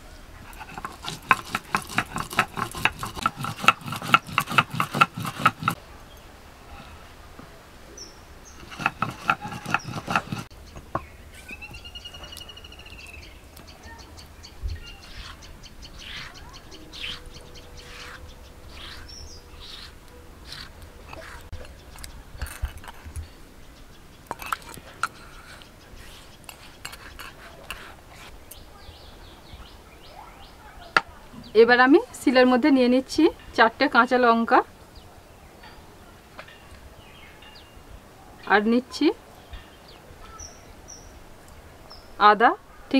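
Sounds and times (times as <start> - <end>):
stone roller grinding on stone: 0.4 - 5.8, 8.6 - 11.6, 15.0 - 15.4, 16.0 - 23.2, 24.3 - 28.3
scrapes and taps on stone: 0.5 - 5.8, 8.6 - 11.1, 20.5 - 23.3, 24.3 - 28.3
bird trilled call: 8.0 - 22.1.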